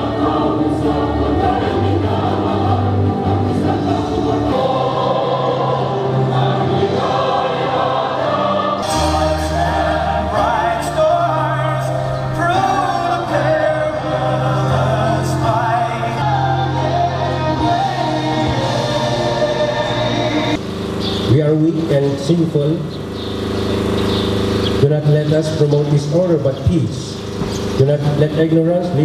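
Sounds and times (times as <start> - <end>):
choir singing anthem: 0.0 - 20.6
instrumental accompaniment: 0.0 - 21.3
long held bass notes: 0.0 - 29.0.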